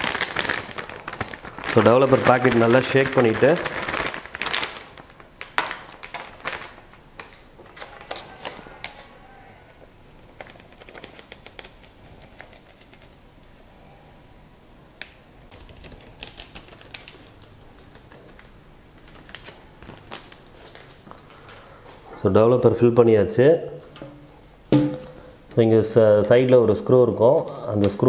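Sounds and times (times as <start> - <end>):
plastic packet clicks and crinkles: 0.0 - 9.0, 10.3 - 13.2, 15.5 - 21.6.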